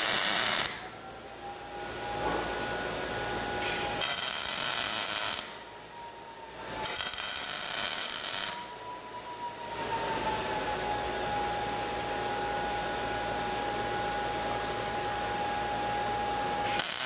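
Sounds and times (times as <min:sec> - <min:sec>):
welding arc crackling: 0:00.0 - 0:00.9, 0:03.6 - 0:05.6, 0:06.8 - 0:08.7, 0:16.6 - 0:17.0.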